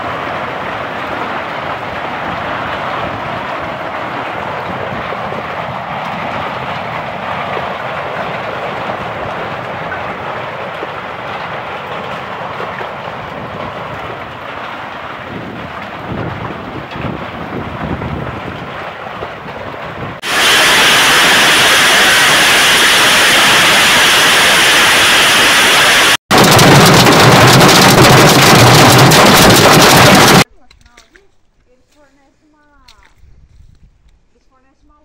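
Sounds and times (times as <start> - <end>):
hail pelting down: 0.0 - 30.4
rain: 0.0 - 30.4
heavy low knocks: 26.3 - 30.4.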